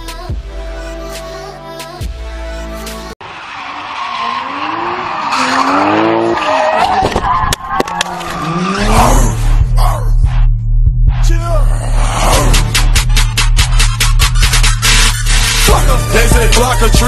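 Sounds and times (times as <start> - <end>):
bass music beat: 0.0 - 3.1, 7.2 - 17.0
car engine revving: 3.2 - 10.4.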